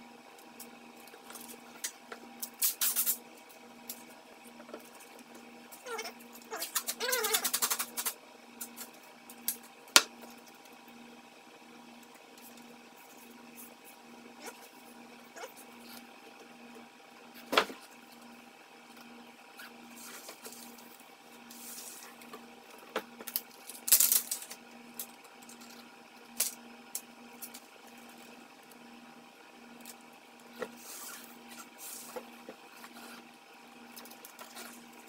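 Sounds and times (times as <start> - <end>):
tape pulled from roll: 2.4 - 3.2.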